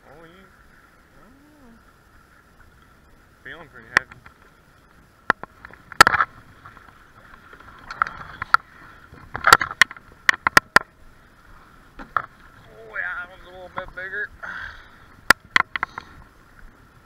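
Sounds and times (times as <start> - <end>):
faint water noise: 0.0 - 17.0
sharp knocks and clicks: 9.2 - 10.9.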